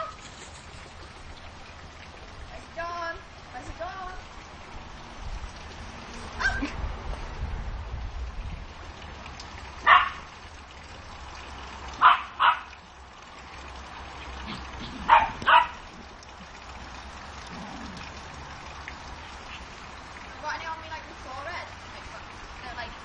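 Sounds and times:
small dog barking: 0:09.8 - 0:10.3, 0:12.0 - 0:12.7, 0:15.0 - 0:15.8.

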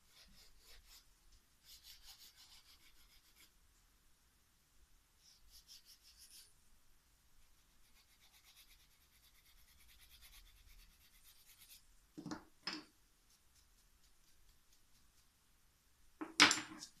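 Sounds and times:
nail file rubbing fingernail: 0:00.0 - 0:03.5, 0:05.2 - 0:06.5, 0:07.5 - 0:11.8, 0:13.2 - 0:15.3.

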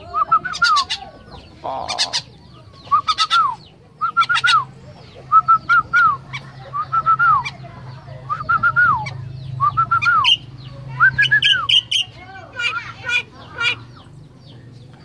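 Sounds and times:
myna calling: 0:00.0 - 0:14.2.

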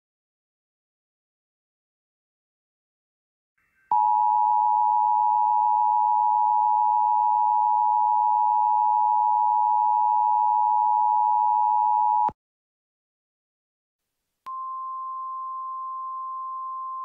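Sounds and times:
long steady electronic tone: 0:03.9 - 0:12.3, 0:14.5 - 0:17.0.

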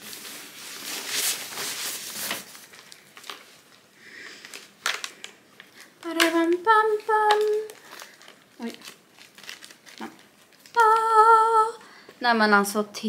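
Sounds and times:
cloth rustling: 0:00.0 - 0:11.3.

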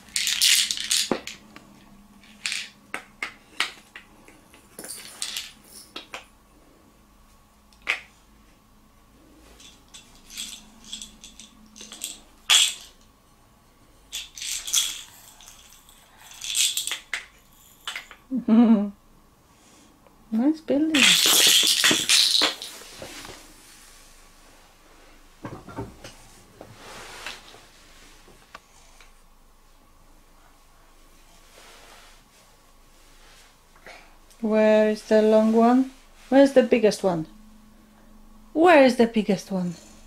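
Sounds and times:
wooden toy blocks clacking: 0:00.1 - 0:01.4, 0:02.2 - 0:04.1, 0:09.6 - 0:13.0, 0:14.1 - 0:18.2, 0:21.0 - 0:22.7.

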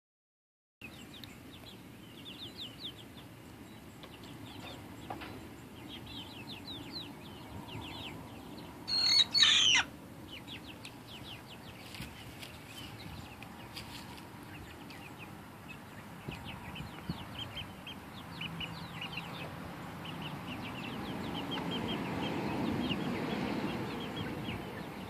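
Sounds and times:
young cockerel crowing: 0:08.9 - 0:09.9.

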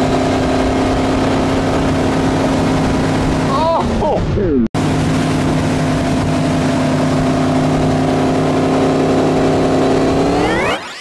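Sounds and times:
boat engine droning: 0:00.0 - 0:04.1, 0:04.8 - 0:10.8.

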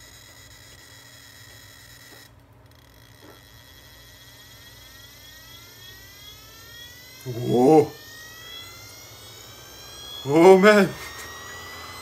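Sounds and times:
hard drive motor whine: 0:00.0 - 0:12.0.

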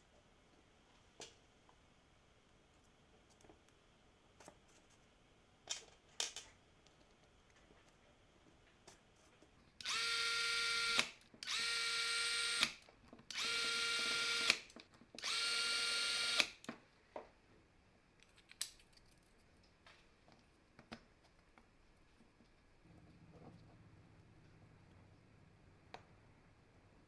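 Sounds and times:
cordless drill whining: 0:09.8 - 0:14.6, 0:15.2 - 0:16.6
parts being handled clicks: 0:18.2 - 0:19.2.

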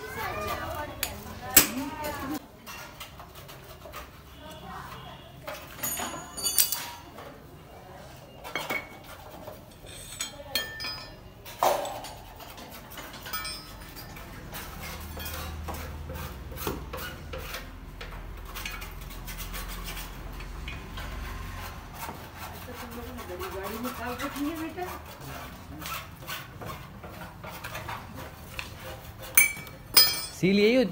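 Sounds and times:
metal tools clinking and scraping: 0:00.0 - 0:07.4, 0:08.3 - 0:16.3, 0:26.3 - 0:30.8
ringing metal clink: 0:05.8 - 0:07.1, 0:13.3 - 0:13.8, 0:29.4 - 0:30.4.

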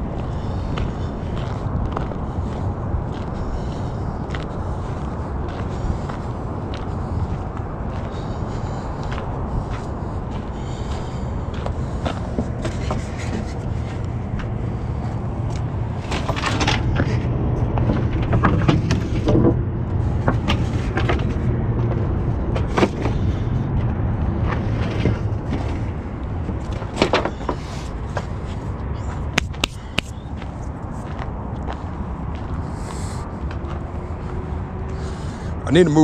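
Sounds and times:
low engine rumble: 0:00.0 - 0:36.0
wooden beams knocking and clattering: 0:16.0 - 0:19.6, 0:20.2 - 0:23.3.

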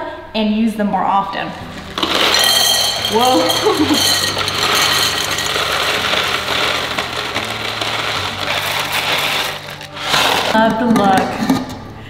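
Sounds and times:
dry pasta clattering into glass: 0:01.7 - 0:10.6.

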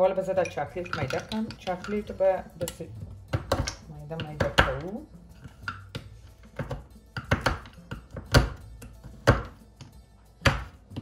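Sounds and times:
background music: 0:00.0 - 0:11.0
knife chopping on wooden board: 0:03.3 - 0:11.0.

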